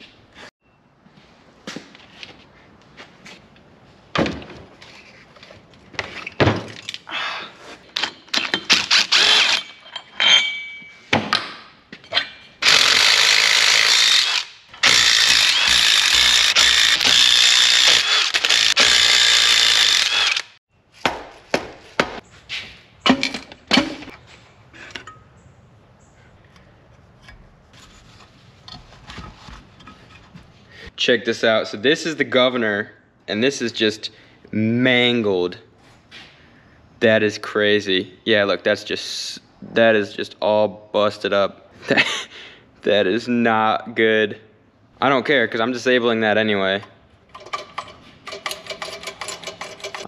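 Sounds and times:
tools and metal parts clanking: 7.9s - 12.9s, 23.0s - 25.4s, 26.5s - 30.6s, 46.7s - 50.0s.

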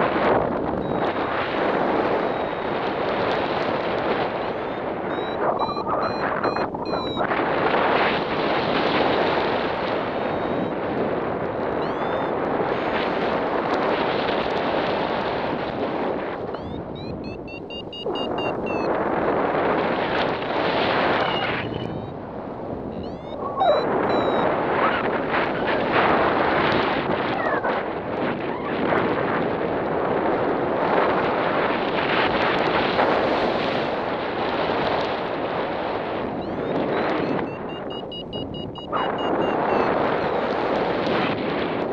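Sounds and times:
wind buffeting microphone: 0.0s - 41.9s
faint rising whistles: 4.5s - 7.3s, 10.2s - 10.7s, 16.6s - 18.9s, 22.9s - 24.4s, 36.4s - 40.4s.

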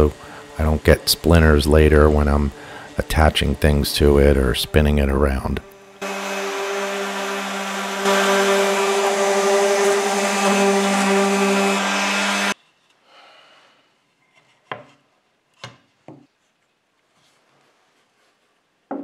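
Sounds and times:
orbit sander humming: 0.0s - 12.6s.

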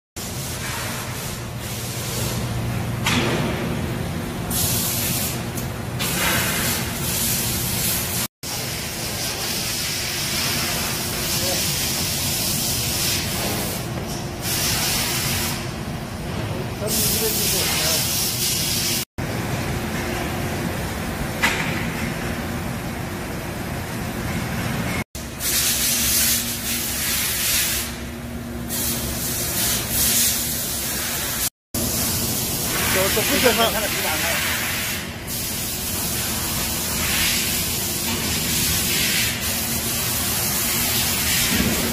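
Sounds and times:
machine hiss: 4.5s - 15.6s, 28.7s - 41.9s.

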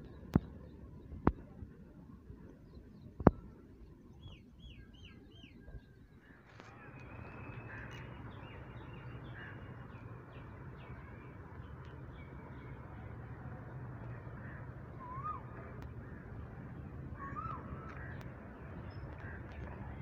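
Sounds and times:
birds calling: 2.7s - 20.0s
diesel locomotive engine hum: 6.4s - 20.0s.

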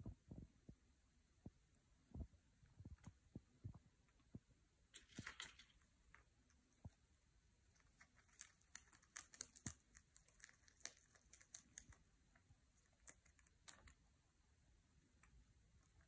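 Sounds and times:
rabbit chewing twigs: 5.0s - 7.0s, 7.6s - 14.2s.

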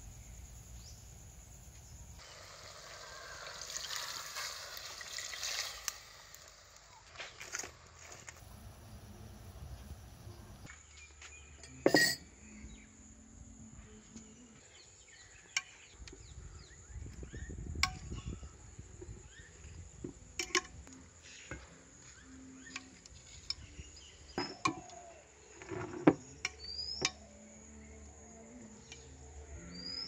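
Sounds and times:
insects droning: 0.0s - 10.7s, 11.9s - 30.0s
glassware clicking and knocking: 11.8s - 12.2s.

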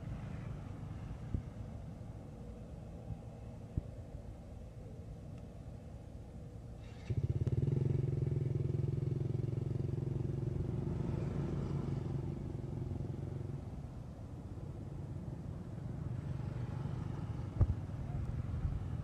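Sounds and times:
motorcycle engine running: 6.9s - 13.6s.

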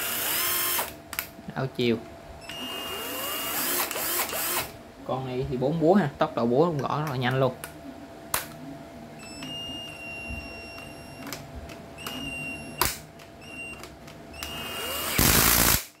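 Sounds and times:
impact driver motor whine: 0.0s - 0.9s, 2.4s - 4.7s, 13.4s - 16.0s.

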